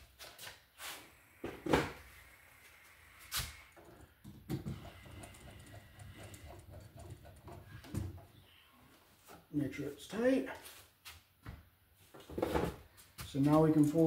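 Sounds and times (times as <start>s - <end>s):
tools clicking and knocking: 3.8s - 8.4s.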